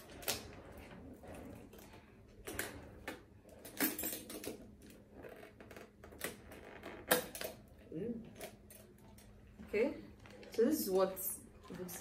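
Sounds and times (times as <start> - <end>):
metal chain strap clinking: 3.5 - 5.0, 8.3 - 9.3.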